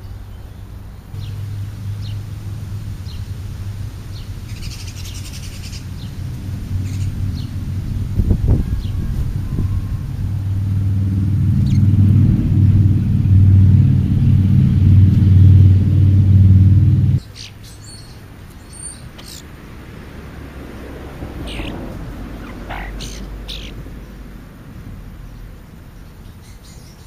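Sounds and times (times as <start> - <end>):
loud low engine hum: 0.0 - 26.8.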